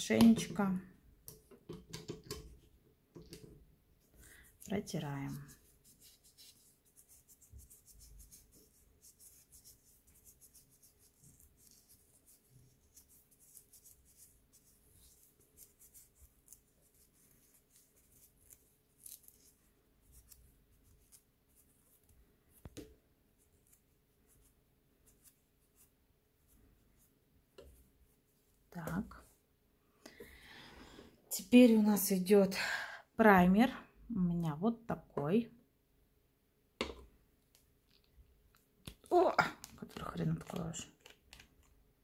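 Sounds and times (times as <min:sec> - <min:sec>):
wipe rubbing on fingernails: 0:05.3 - 0:22.7, 0:23.3 - 0:29.3.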